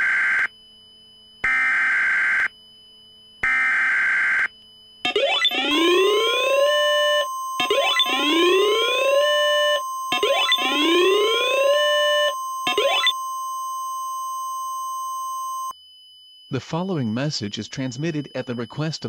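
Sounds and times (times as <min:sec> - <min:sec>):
rising siren-like alarm sweep: 0:03.5 - 0:15.7
steady alert tone: 0:05.1 - 0:13.2
harsh buzzing data bursts: 0:05.1 - 0:13.4.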